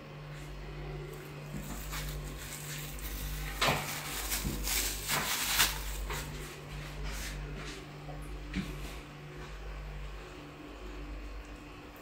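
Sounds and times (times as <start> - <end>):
steady low hum: 0.0 - 12.0
plastic bag crinkling: 1.2 - 6.6.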